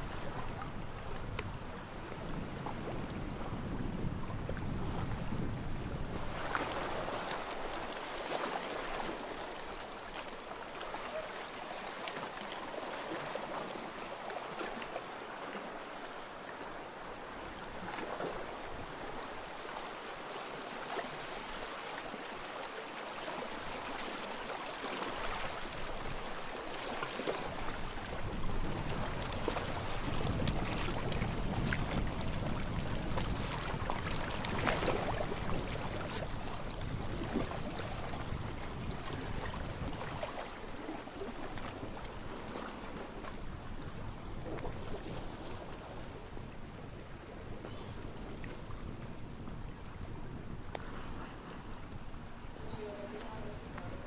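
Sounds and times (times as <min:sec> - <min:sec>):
wind rumbling on microphone: 0:00.0 - 0:10.0, 0:25.1 - 0:54.0
small waves lapping: 0:00.0 - 0:54.0.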